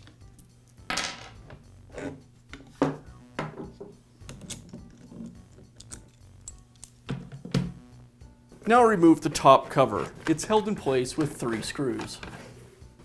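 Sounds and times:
parts knocking on wooden bench: 0:02.6 - 0:04.0, 0:07.1 - 0:07.8.

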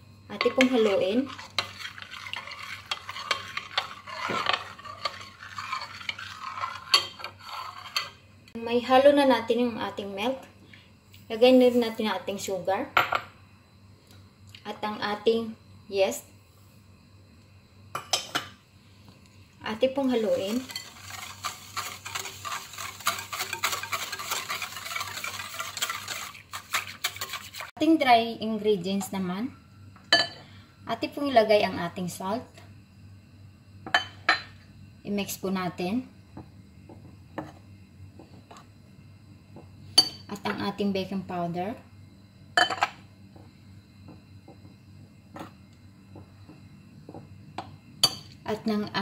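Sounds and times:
metal spoon stirring in a bowl: 0:00.4 - 0:08.2, 0:19.8 - 0:27.7.

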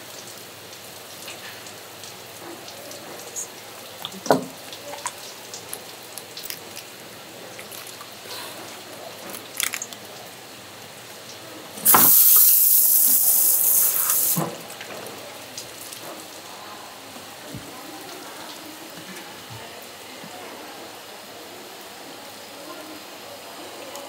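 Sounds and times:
running water spraying: 0:00.0 - 0:16.6.

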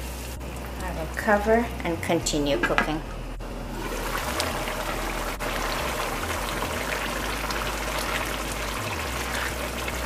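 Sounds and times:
puree bubbling in a pan: 0:03.7 - 0:10.0.

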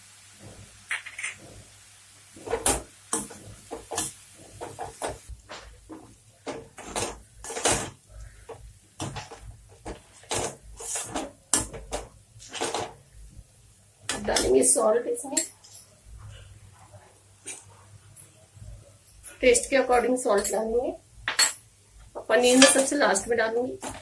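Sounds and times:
metal spoon scraping a wok: 0:10.3 - 0:11.4.

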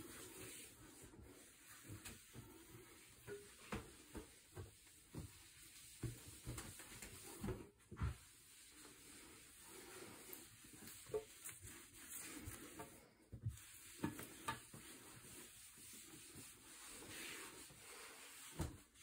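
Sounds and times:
cloth wiping countertop: 0:00.0 - 0:19.0
soft irregular thumps: 0:00.0 - 0:19.0.

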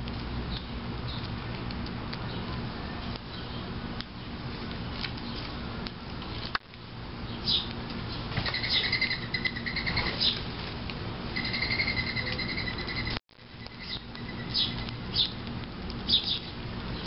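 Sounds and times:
steady low hum: 0:00.0 - 0:17.0
birds chirping: 0:02.2 - 0:04.4, 0:07.2 - 0:10.5, 0:11.3 - 0:15.4, 0:16.0 - 0:17.0
wings fluttering: 0:07.9 - 0:15.4.

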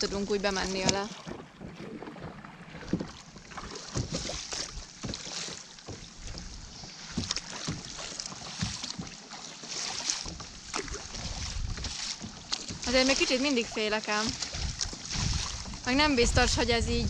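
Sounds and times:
paddle strokes splashing water: 0:00.0 - 0:17.0
wind buffeting microphone: 0:10.9 - 0:12.0, 0:14.4 - 0:17.0.

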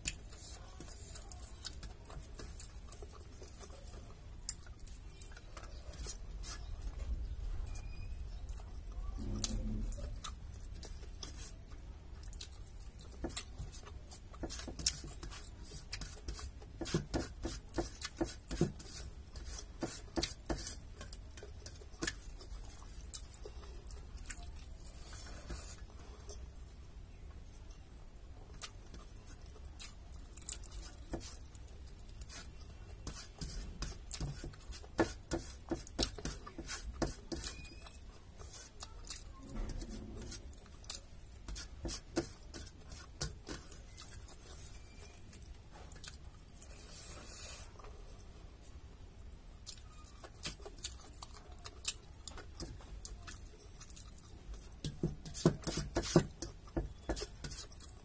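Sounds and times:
chewing and lip smacks: 0:09.4 - 0:14.0, 0:28.5 - 0:32.7, 0:49.6 - 0:54.7.

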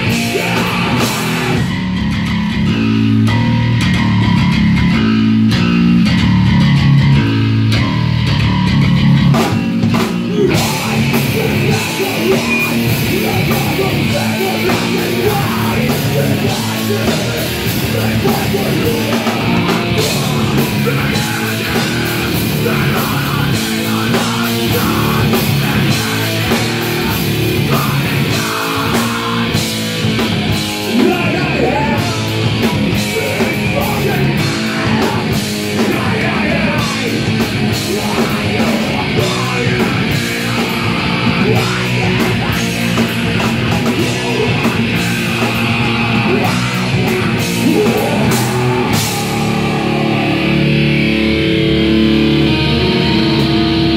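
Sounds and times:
bass guitar: 0:00.0 - 0:53.9
electric guitar: 0:00.0 - 0:53.9
drums with cymbals: 0:08.3 - 0:49.9.

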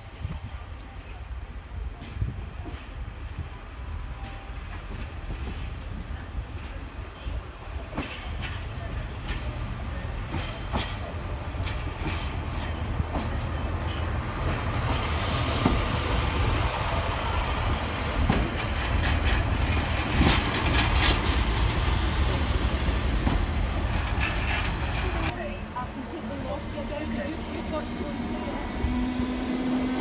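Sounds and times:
train wheels clicking: 0:07.8 - 0:25.4.

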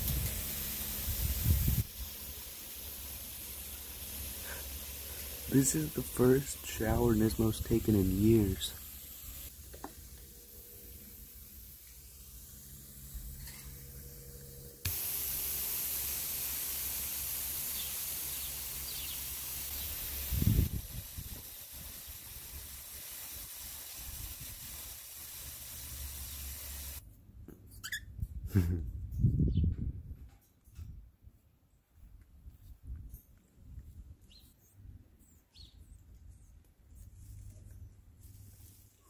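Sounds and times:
water spraying hiss: 0:00.0 - 0:13.8, 0:14.9 - 0:27.0.

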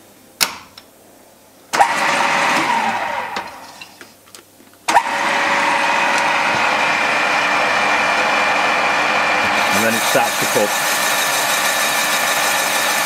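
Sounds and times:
boring machine motor whining: 0:04.9 - 0:13.0.

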